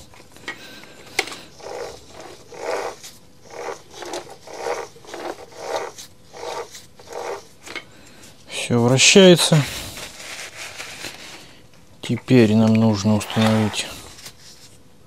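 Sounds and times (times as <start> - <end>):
chainsaw gears scraping and ratcheting: 1.6 - 7.8, 13.1 - 14.0.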